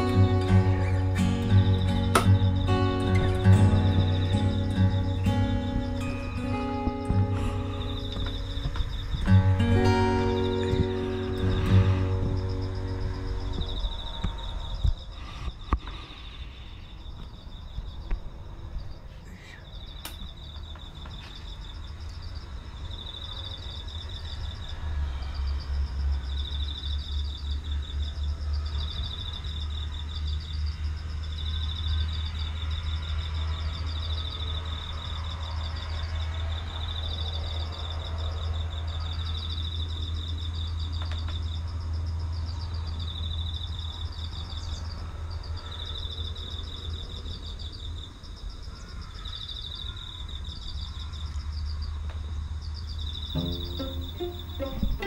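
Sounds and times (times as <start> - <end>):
high-pitched chirping trills: 0.0 - 14.2, 53.4 - 55.0
low rumble: 0.0 - 15.2.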